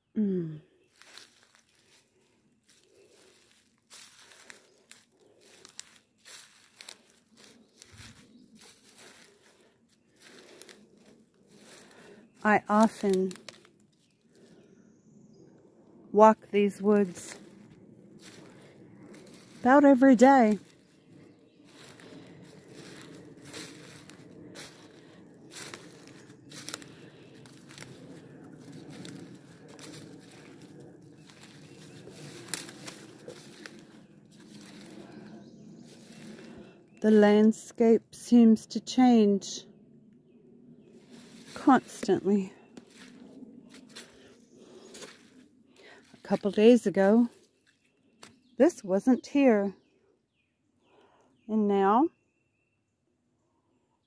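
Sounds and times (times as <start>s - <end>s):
footsteps crunching dry leaves: 0.9s - 14.5s, 17.0s - 37.0s, 40.9s - 48.4s
rustle of leaf litter: 0.9s - 14.5s, 17.1s - 19.8s, 20.4s - 37.2s, 40.9s - 47.7s.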